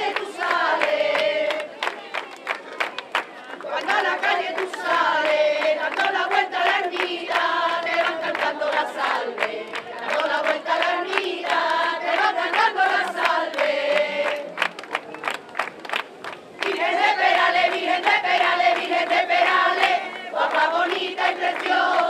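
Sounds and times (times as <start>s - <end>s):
crowd singing in unison: 0.0s - 2.1s, 3.4s - 14.8s, 16.6s - 22.0s
hand clapping: 0.0s - 22.0s.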